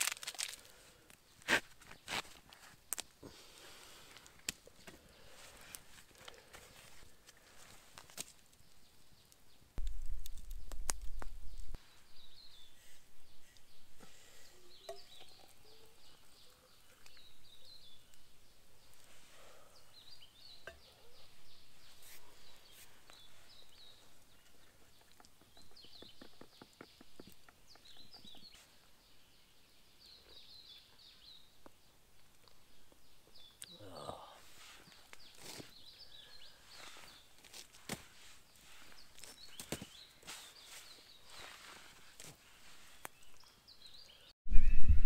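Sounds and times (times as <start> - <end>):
birds chirping: 10.5 - 45.0.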